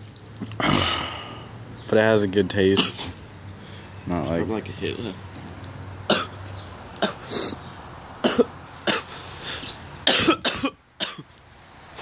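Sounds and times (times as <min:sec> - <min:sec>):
person coughing: 0:06.1 - 0:06.4, 0:08.2 - 0:09.2, 0:10.1 - 0:11.2.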